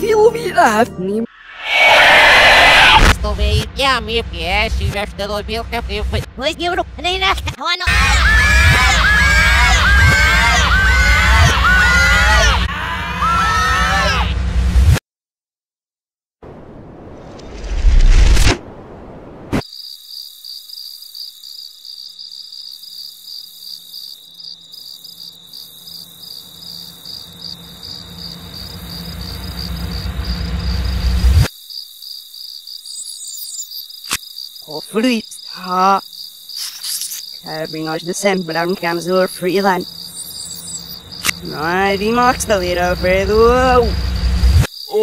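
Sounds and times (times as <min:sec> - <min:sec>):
warbling pitch-shifted voices: 0:01.2 - 0:03.6
high cricket-like chirring: 0:19.6 - 0:45.0.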